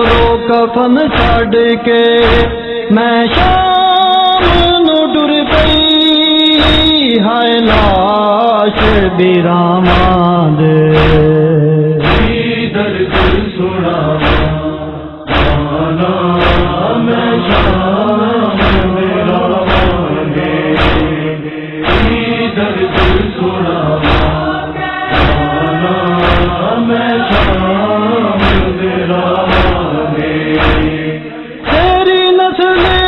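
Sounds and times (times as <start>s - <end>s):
steady drum beat: 0.0s - 0.4s, 2.2s - 2.6s, 3.3s - 3.7s, 4.4s - 4.8s, 5.5s - 5.9s, 6.6s - 7.0s, 8.8s - 9.2s, 9.8s - 10.3s, 10.9s - 11.3s, 12.0s - 12.5s, 13.1s - 13.5s, 14.2s - 14.7s, 15.3s - 18.0s, 18.6s - 23.4s, 24.0s - 32.1s, 32.8s - 33.0s
chorus chanting a lament: 0.0s - 33.0s
loud vocal line: 0.0s - 33.0s.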